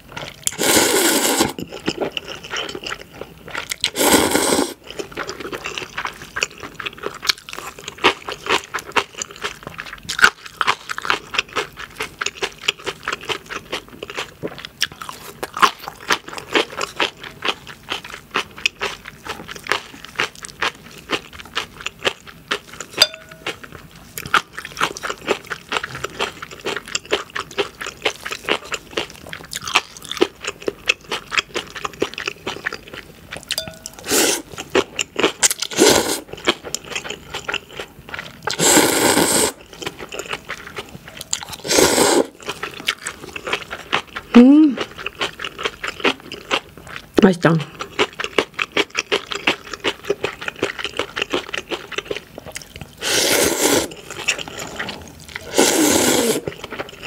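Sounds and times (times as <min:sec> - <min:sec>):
wet chewing with crunchy bites: 0:00.0 - 0:57.0
slurping noodles: 0:00.4 - 0:01.7, 0:03.8 - 0:05.1, 0:34.0 - 0:34.6, 0:35.4 - 0:36.3, 0:38.4 - 0:39.7, 0:41.4 - 0:42.6, 0:52.9 - 0:57.0.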